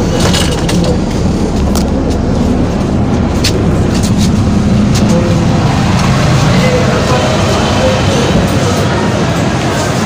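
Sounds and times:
rattles and clicks: 0.0 - 6.1
bus cabin low rumble: 0.0 - 10.0.

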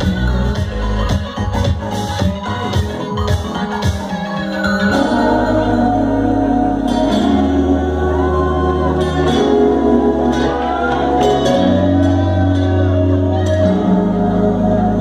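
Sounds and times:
loud live electronic music: 0.0 - 15.0.

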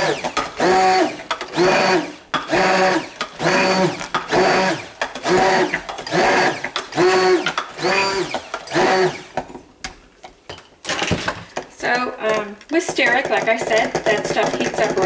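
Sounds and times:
stick blender motor whine: 0.0 - 9.4.

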